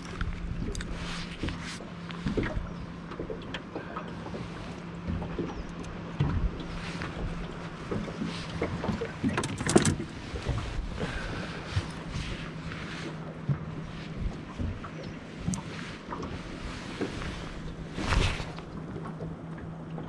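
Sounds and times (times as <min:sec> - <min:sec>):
knocks and clicks of gear: 0:05.0 - 0:11.1.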